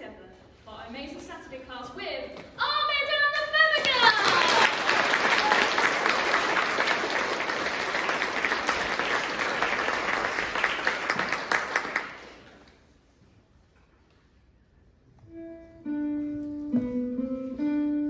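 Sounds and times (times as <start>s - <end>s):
audience applauding: 3.8s - 12.7s.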